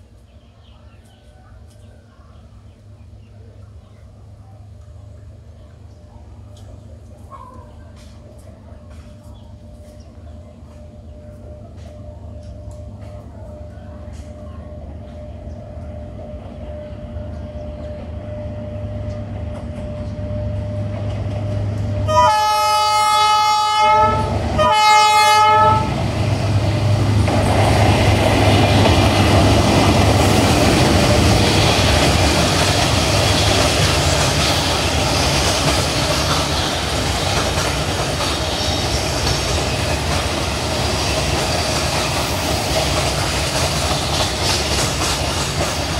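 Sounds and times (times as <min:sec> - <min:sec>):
locomotive engine rumble: 0:00.0 - 0:45.9
multi-tone train horn: 0:21.9 - 0:26.0.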